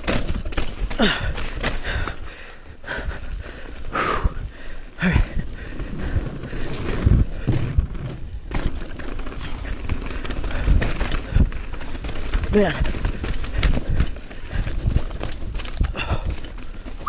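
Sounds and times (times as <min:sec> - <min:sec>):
tyres rolling over dirt and rock: 0:00.0 - 0:02.2, 0:05.0 - 0:17.0
bike knocking and rattling: 0:00.0 - 0:17.0
wind rushing over microphone: 0:05.2 - 0:08.5.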